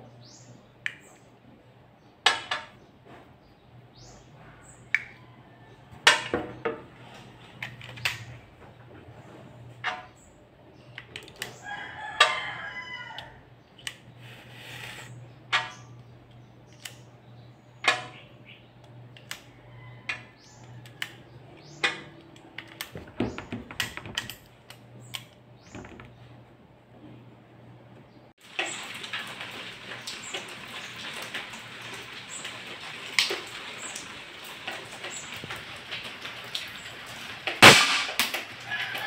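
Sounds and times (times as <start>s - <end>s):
rooster crowing: 11.6s - 13.5s, 38.5s - 39.0s.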